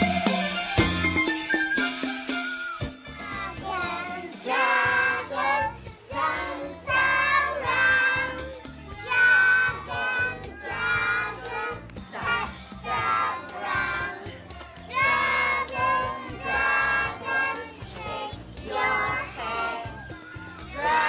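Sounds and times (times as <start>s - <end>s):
music: 0.0s - 21.0s
children singing: 3.1s - 21.0s.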